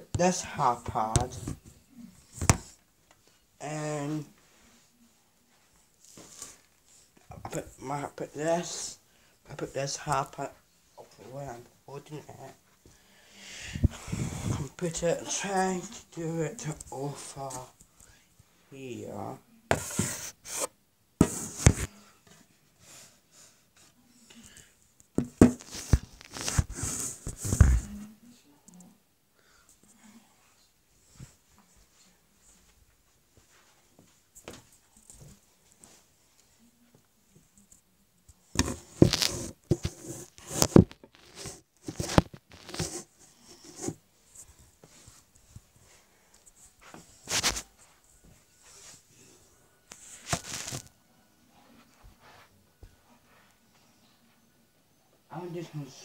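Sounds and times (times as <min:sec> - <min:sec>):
rustling: 0:38.6 - 0:49.1, 0:49.9 - 0:51.0.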